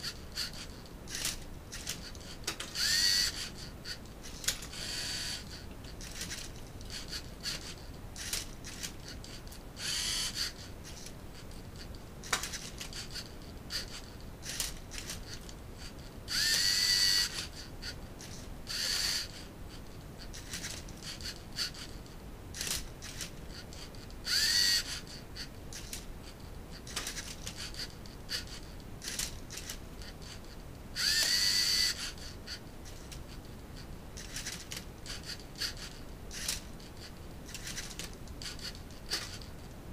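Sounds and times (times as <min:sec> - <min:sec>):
robot motors whirring: 0:00.0 - 0:11.1, 0:12.2 - 0:17.6, 0:18.2 - 0:19.5, 0:22.6 - 0:25.2, 0:31.0 - 0:33.2, 0:34.2 - 0:36.7.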